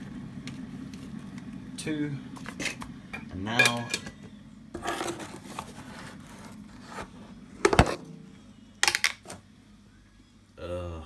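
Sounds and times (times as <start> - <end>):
plastic tub scraping and rubbing: 4.8 - 8.0.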